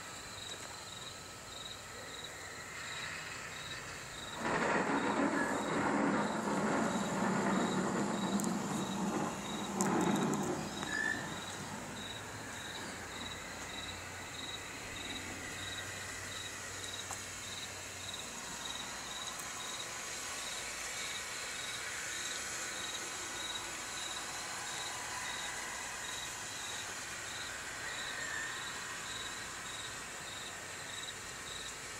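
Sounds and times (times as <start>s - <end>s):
cricket chirping: 0.0s - 31.9s
low rumble: 4.4s - 12.6s.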